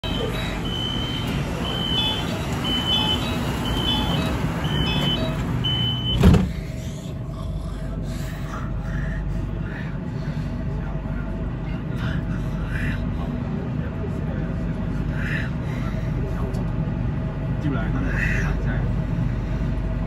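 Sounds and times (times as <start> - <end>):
short high beeps: 0.0 - 6.2
train running noise: 0.0 - 20.0
doors shutting with thud: 3.9 - 6.6.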